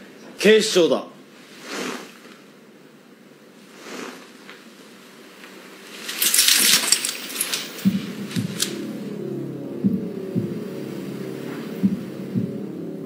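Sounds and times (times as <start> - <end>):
clothing rustling: 3.6 - 8.8.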